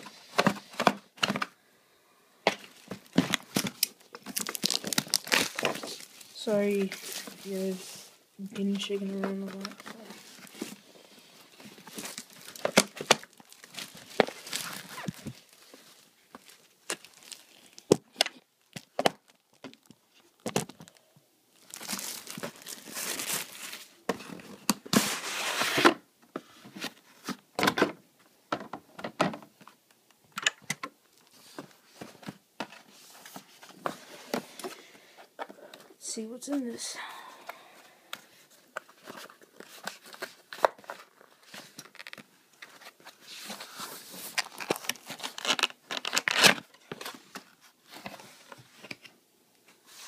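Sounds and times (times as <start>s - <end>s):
plastic wrapping crinkling: 2.6s - 8.0s, 8.6s - 24.8s, 38.3s - 47.4s.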